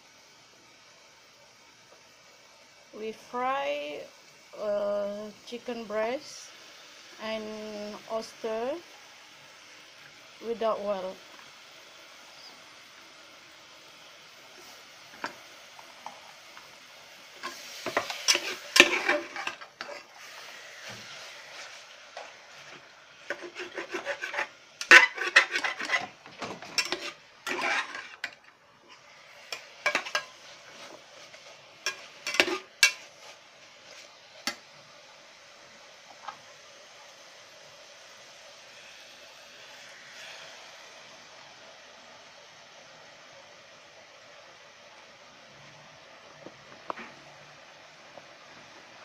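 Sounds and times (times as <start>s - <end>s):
metal spatula scraping a pot: 17.4s - 33.4s.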